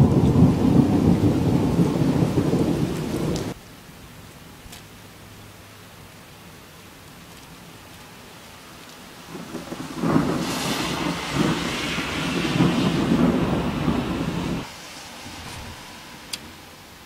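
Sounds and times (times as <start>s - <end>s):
crackling thunder rumble: 0.0s - 3.6s, 9.1s - 16.6s
rain hiss: 0.0s - 17.0s.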